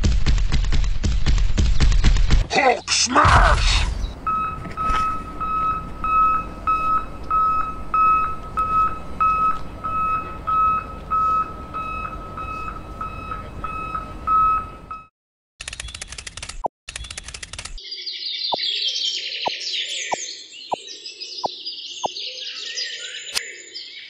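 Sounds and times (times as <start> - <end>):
reversing alarm beeping: 4.2 - 15.1.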